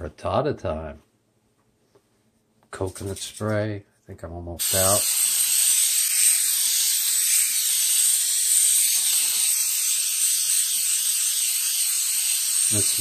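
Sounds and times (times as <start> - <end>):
aerosol spray hissing: 4.6 - 13.0.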